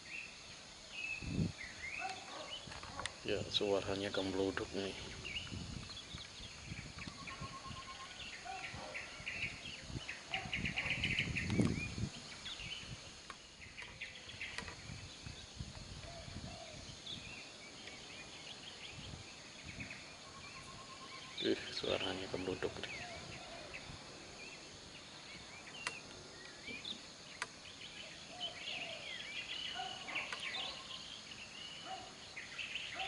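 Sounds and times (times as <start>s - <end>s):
birds chirping: 0.0s - 33.0s.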